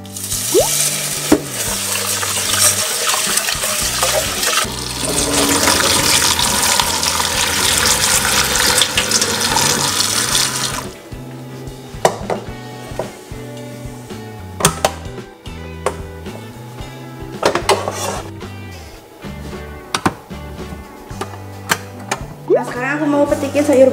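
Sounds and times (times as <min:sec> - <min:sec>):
water splashing over pot: 0:00.2 - 0:10.9
tap running into sink: 0:01.3 - 0:01.8.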